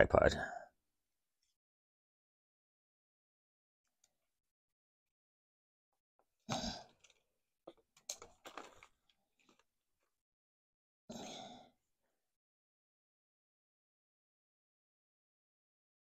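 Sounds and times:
small clicks and scrapes: 6.9s - 9.7s
rustling handling noise: 7.0s - 9.7s.

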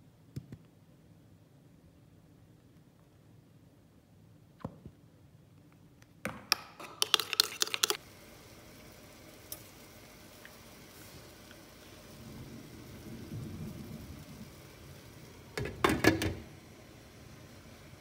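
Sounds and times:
tongs clicking: 6.8s - 8.0s
water boiling: 6.8s - 18.0s.

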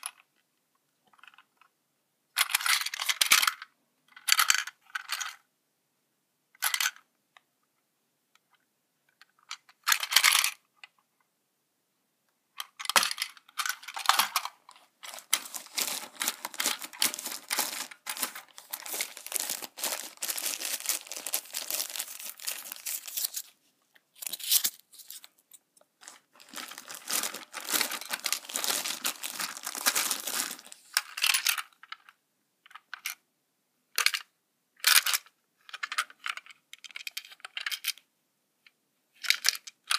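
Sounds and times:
plastic toy train rattling: 2.4s - 5.4s, 6.6s - 7.0s, 9.2s - 10.7s, 12.6s - 23.5s, 26.0s - 32.2s, 34.0s - 38.0s, 39.2s - 39.9s.

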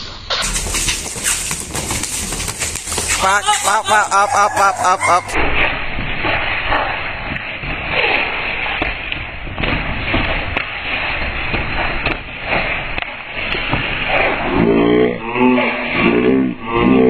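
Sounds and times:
boxing gloves slapping: 0.4s - 4.1s, 8.0s - 14.1s.

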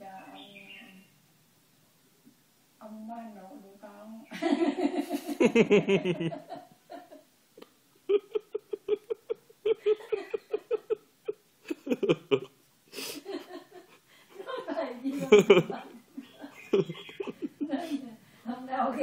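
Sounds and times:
elderly woman laughing: 4.3s - 7.2s, 8.1s - 18.2s.

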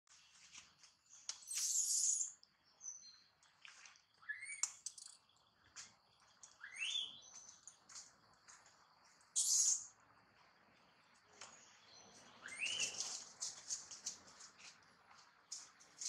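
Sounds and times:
whistled animal chirps: 4.2s - 4.7s, 6.6s - 7.2s, 9.4s - 9.9s, 12.4s - 13.0s.

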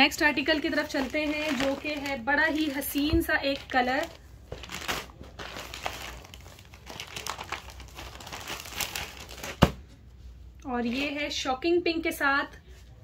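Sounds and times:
cloth crinkling and rustling: 0.0s - 9.8s.

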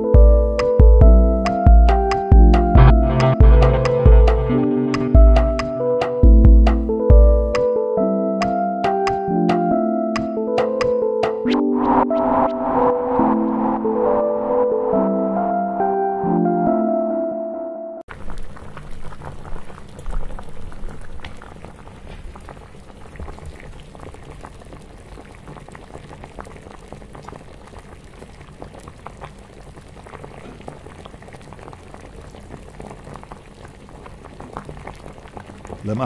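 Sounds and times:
ambient music chord: 0.0s - 18.0s
boiling liquid bubbling: 18.1s - 36.0s.

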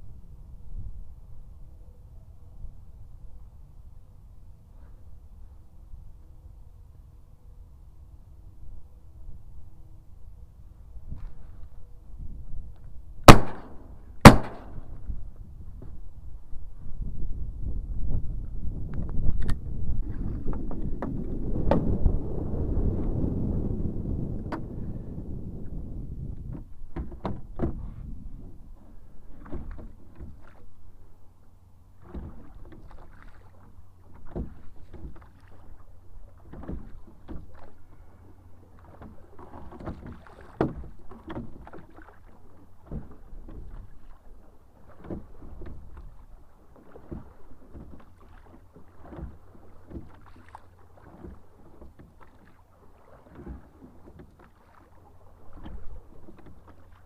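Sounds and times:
water lapping at hull: 0.8s - 57.0s
knocks against boat: 20.5s - 21.9s, 26.4s - 28.1s, 32.0s - 33.0s, 34.1s - 35.4s, 36.4s - 37.7s, 38.9s - 42.1s, 42.8s - 43.9s, 44.9s - 46.1s, 47.0s - 52.6s, 53.2s - 54.6s.

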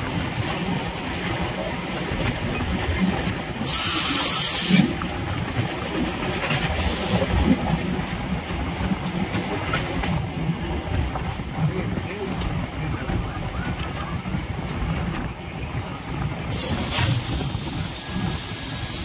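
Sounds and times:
train wheels rumbling on rails: 0.0s - 19.0s
loud hiss: 3.6s - 4.8s
rushing air: 16.3s - 19.0s.

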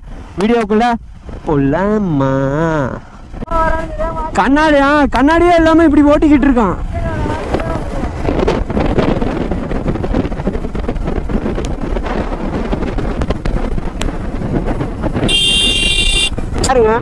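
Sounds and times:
wind rush on microphone: 0.0s - 17.0s
motorcycle engine cruising: 1.0s - 17.0s
high-pitched horn toot: 15.3s - 16.3s.

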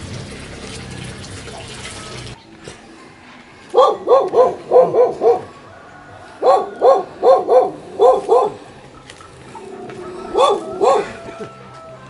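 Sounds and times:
dog barking: 3.7s - 5.6s, 6.4s - 8.6s, 10.3s - 11.2s.

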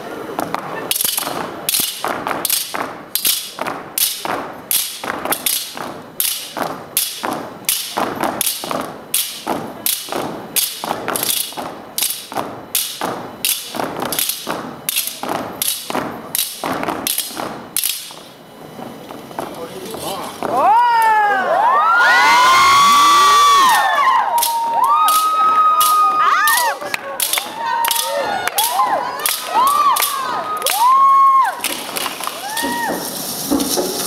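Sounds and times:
machetes striking together: 0.4s - 18.3s, 23.7s - 30.8s
boot stomps: 31.6s - 34.0s.

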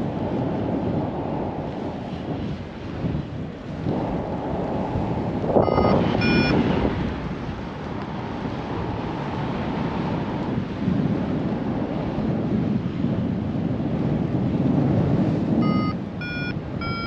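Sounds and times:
wind buffeting microphone: 0.0s - 17.0s
short electronic beeps: 5.6s - 6.6s, 15.6s - 17.0s.

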